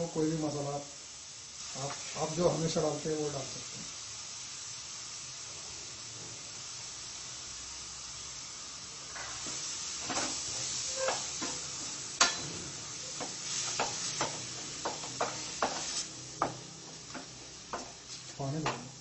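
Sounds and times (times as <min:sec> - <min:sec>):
food sizzling in a pan: 0:00.0 - 0:19.0.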